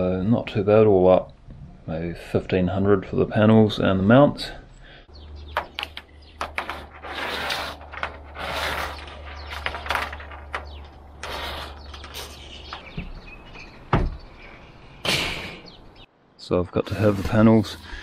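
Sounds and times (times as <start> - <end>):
tape measure scraping metal roofing: 5.6 - 13.2
heavy knock: 13.9 - 14.2.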